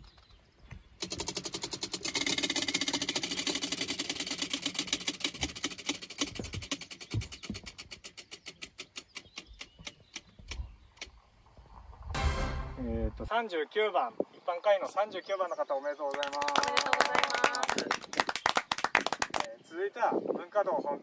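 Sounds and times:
prize wheel pointers clicking: 1.0s - 7.1s.

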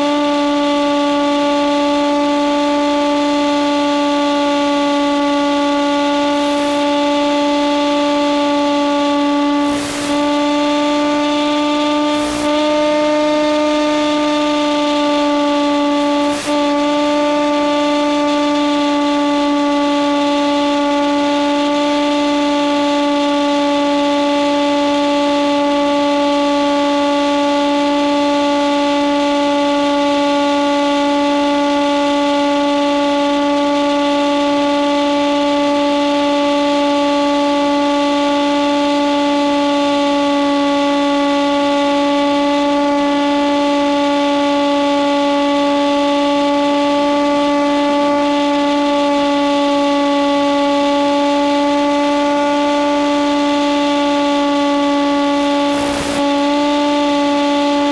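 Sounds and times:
model plane propeller drone: 0.0s - 57.9s
rushing air hiss: 9.6s - 10.4s, 12.1s - 12.5s, 55.4s - 56.3s.

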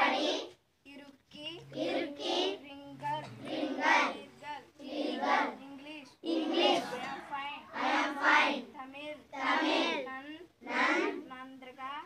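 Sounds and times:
children chanting: 0.0s - 0.5s, 1.7s - 5.6s, 6.2s - 8.7s, 9.4s - 11.2s.

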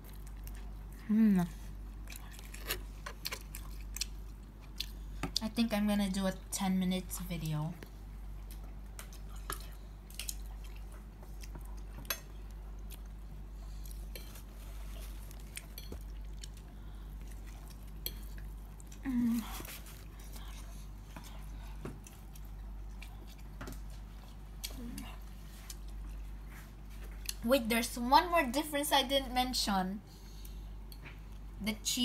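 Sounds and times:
person chewing: 0.0s - 1.0s, 1.7s - 5.4s, 7.8s - 27.4s.

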